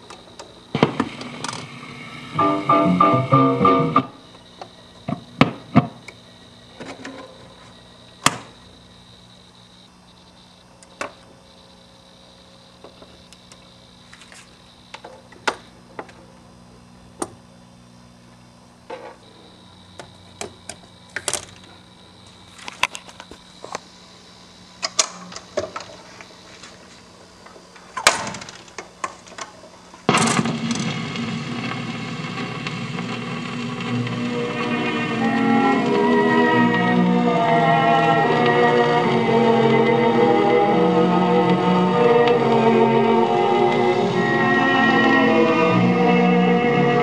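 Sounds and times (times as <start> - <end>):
record changer clicks and clunks: 0.0 - 1.8
electrical hum: 0.0 - 47.0
record playing music: 0.7 - 4.4, 5.0 - 6.0, 30.1 - 47.0.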